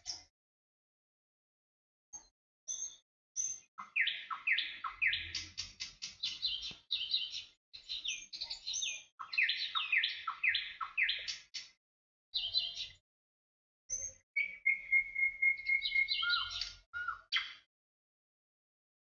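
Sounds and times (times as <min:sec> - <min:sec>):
bird song with high chirps: 0:00.0 - 0:00.3, 0:02.1 - 0:11.8, 0:12.4 - 0:13.0, 0:13.9 - 0:17.7.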